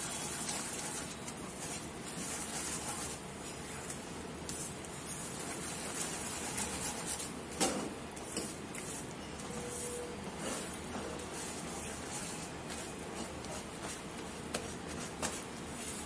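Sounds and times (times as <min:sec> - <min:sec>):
spatula scraping a pan: 0:08.3 - 0:14.0.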